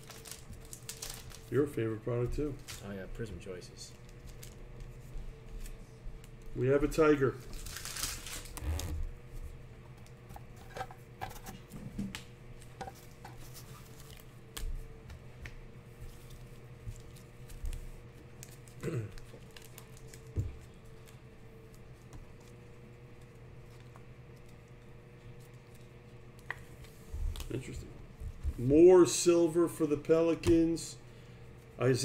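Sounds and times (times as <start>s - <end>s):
steady low hum: 0.0s - 32.0s
cards shuffled and tapped: 9.9s - 28.6s.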